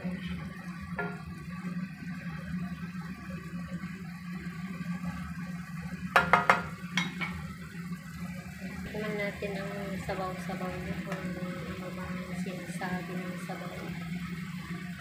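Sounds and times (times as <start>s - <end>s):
steady low hum: 0.0s - 15.0s
vegetables simmering in a wok: 0.0s - 15.0s
spatula knocking against pan: 6.1s - 7.4s.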